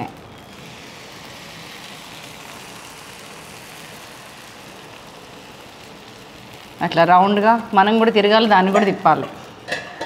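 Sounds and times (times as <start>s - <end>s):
batter sizzling in a pan: 0.0s - 10.0s.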